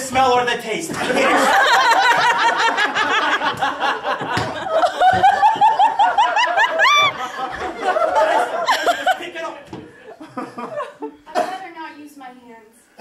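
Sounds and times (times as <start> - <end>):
audience laughter: 1.0 - 11.1.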